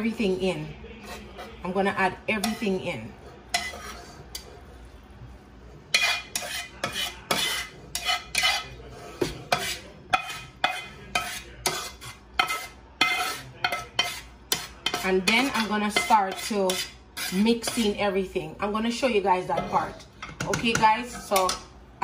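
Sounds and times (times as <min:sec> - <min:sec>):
spatula scraping frying pan: 0:01.0 - 0:05.1, 0:05.7 - 0:21.6
spatula clanking on metal pot: 0:02.4 - 0:02.8, 0:03.5 - 0:04.5, 0:05.9 - 0:18.0, 0:19.5 - 0:21.7.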